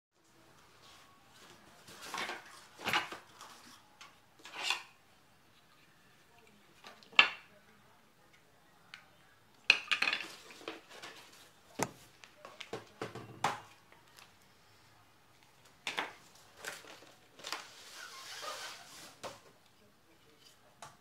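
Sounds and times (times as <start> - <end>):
cardboard and paper rustling: 0.7 - 3.8, 10.2 - 13.0, 16.0 - 19.6.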